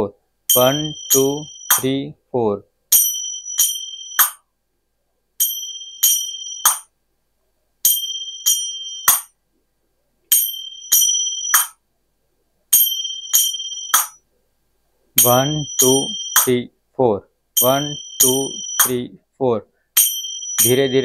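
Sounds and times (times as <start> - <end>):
hand cymbals ringing and closing: 0.5 - 2.0, 2.9 - 4.4, 5.4 - 6.9, 7.8 - 9.4, 10.3 - 11.8, 12.7 - 14.2, 15.2 - 16.6, 17.6 - 19.0, 20.0 - 21.0.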